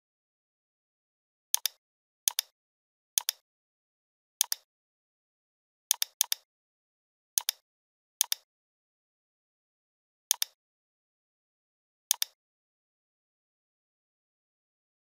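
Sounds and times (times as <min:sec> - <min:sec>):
computer mouse clicking: 0:01.6 - 0:02.5, 0:03.2 - 0:03.4, 0:04.4 - 0:04.7, 0:05.9 - 0:06.5, 0:07.4 - 0:07.6, 0:08.2 - 0:08.5, 0:10.3 - 0:10.6, 0:12.1 - 0:12.4.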